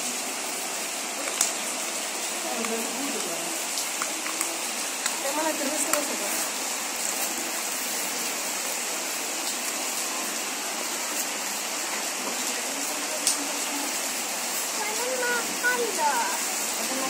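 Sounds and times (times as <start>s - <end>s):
heavy rain pouring: 0.0s - 17.0s.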